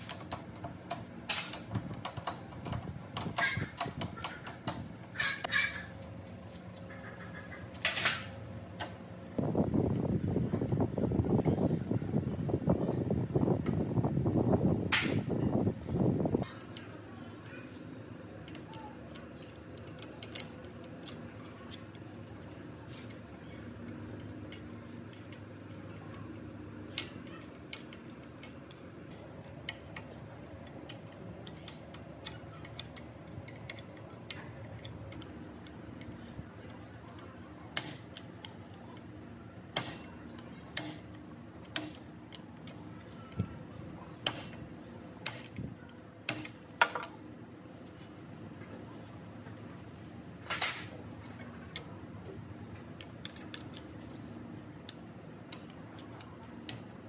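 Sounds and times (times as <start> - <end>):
metallic clicks of hand tools: 18.4 - 22.0, 27.0 - 36.1, 39.8 - 43.4, 53.0 - 54.2.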